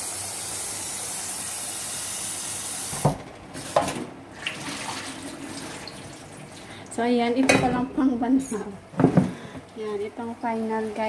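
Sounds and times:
tap running into sink: 2.9 - 3.2.

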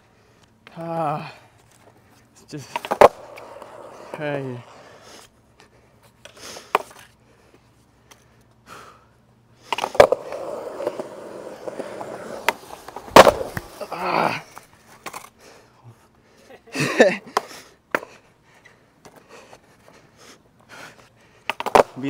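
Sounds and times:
skateboard wheels rolling on concrete: 0.0 - 22.0
skateboard scraping: 1.6 - 8.3, 9.6 - 15.4, 19.1 - 22.0
skateboard snap: 2.7 - 4.2, 6.2 - 7.1, 9.7 - 15.3, 21.4 - 22.0
skateboard loud crack: 2.7 - 4.9, 9.6 - 15.3, 21.4 - 22.0
skateboard clattering knocks: 2.8 - 4.1, 9.7 - 13.8, 21.5 - 22.0.

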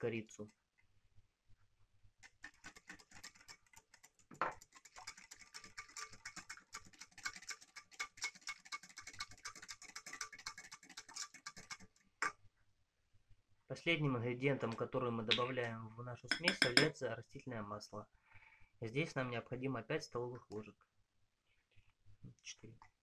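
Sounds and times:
whisk clicking against bowl: 2.3 - 11.9, 16.3 - 16.9
whisk knocking bowl: 2.4 - 11.8, 16.3 - 16.9.

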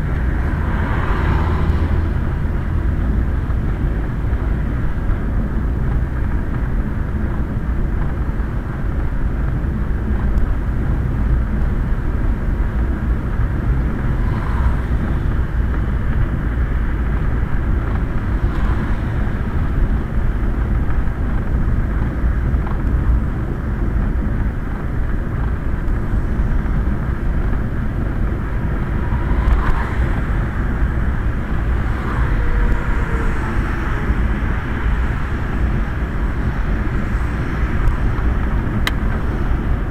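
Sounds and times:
low rumble of rolling on wet road: 0.0 - 39.9
rain: 23.8 - 39.9.

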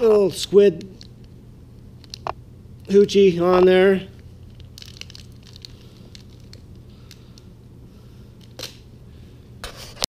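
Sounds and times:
low steady hum: 0.0 - 10.0
plastic package crinkling: 2.0 - 7.5.

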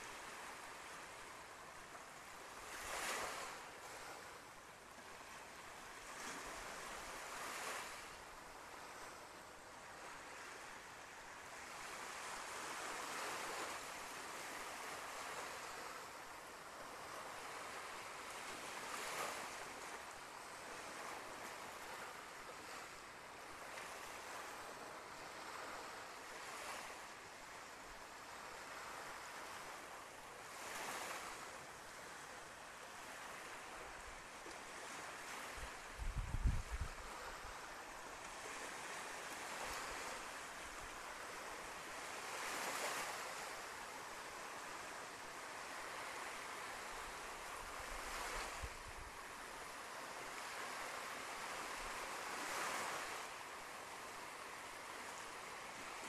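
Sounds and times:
sea waves washing onto beach: 0.0 - 56.0
wind rumble on microphone: 34.7 - 37.7.

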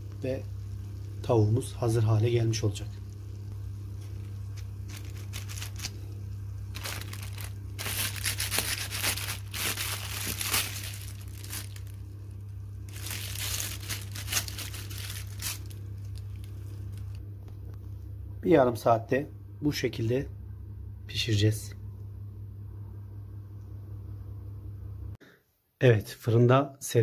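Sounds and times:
low steady hum: 0.0 - 25.2
plastic bag crinkling and rustling: 4.0 - 12.1, 12.9 - 17.2.

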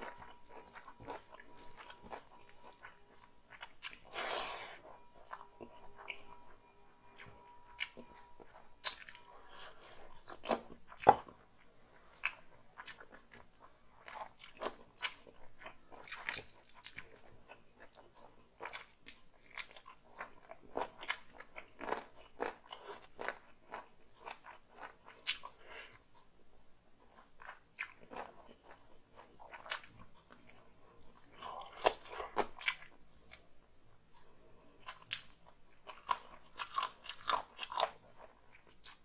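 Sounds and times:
person chewing and lip smacking: 12.2 - 26.4, 27.0 - 33.5, 34.2 - 39.0.

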